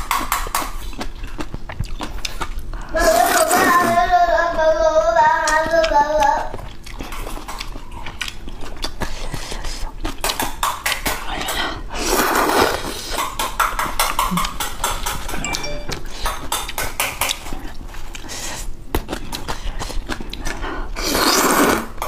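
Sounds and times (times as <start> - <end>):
wet chewing and lip smacks: 0.2 - 2.9, 5.5 - 11.6, 17.2 - 20.7
noodle slurp: 12.0 - 13.1, 21.0 - 22.0.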